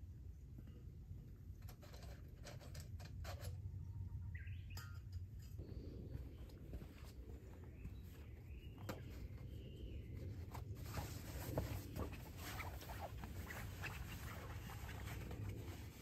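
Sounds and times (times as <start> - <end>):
tent canvas rustling: 6.1 - 16.0.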